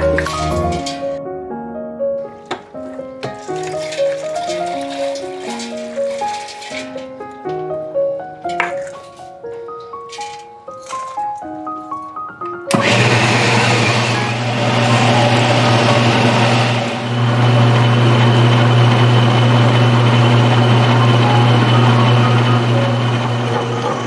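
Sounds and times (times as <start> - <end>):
wet grinder motor humming: 12.7 - 24.0.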